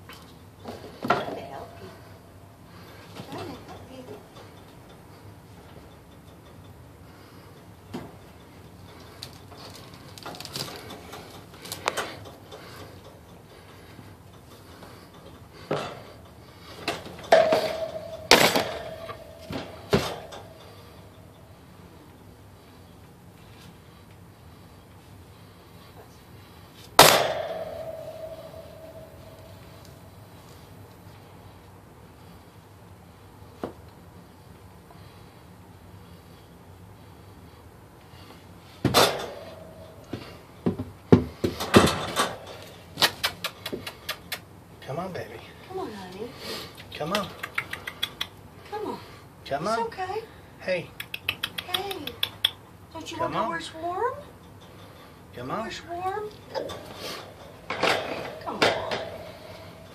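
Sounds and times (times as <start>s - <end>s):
metallic clanks and knocks: 10.3s - 21.6s, 27.0s - 30.8s, 38.8s - 42.9s, 56.5s - 59.9s
metallic ringing tone: 17.2s - 21.7s, 27.0s - 31.1s.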